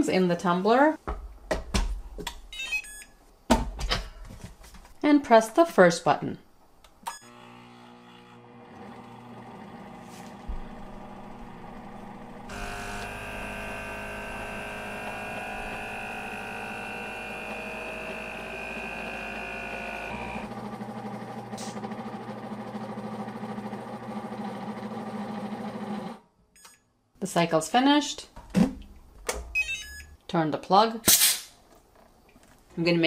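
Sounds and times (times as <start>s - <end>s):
blender motor humming: 7.2s - 26.2s.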